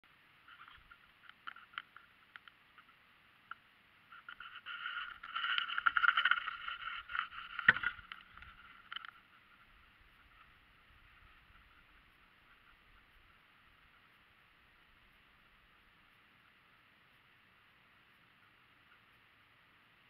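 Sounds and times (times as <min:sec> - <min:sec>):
handling noise rustling and scraping: 0:04.1 - 0:12.8.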